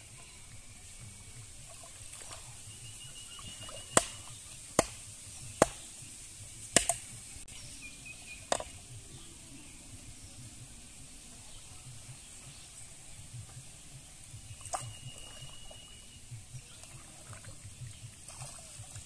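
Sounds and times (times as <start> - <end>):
wooden stake knocks: 4.0 - 4.2, 4.8 - 5.0, 5.6 - 5.8, 6.8 - 7.1.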